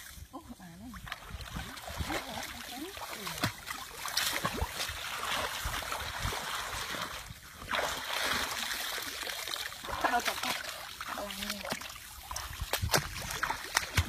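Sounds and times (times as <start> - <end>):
water splashing and trickling: 0.0 - 14.0.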